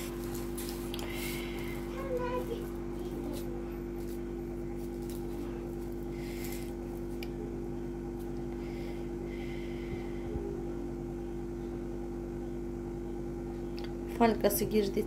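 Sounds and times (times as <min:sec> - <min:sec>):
fork scraping foil: 0:00.0 - 0:07.1
appliance humming: 0:00.0 - 0:15.0.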